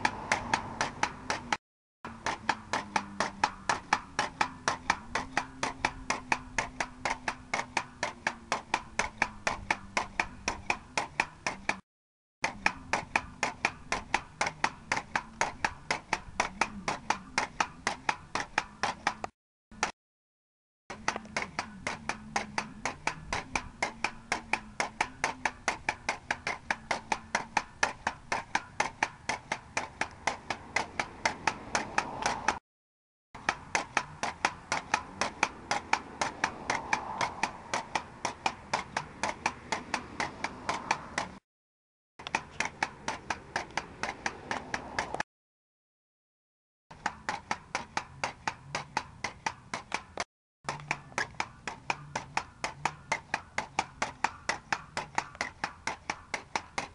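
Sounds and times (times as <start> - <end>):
pogo stick bouncing on asphalt: 0.0 - 11.8, 12.4 - 20.0, 20.9 - 32.6, 33.4 - 41.4, 42.2 - 45.2, 46.9 - 56.9.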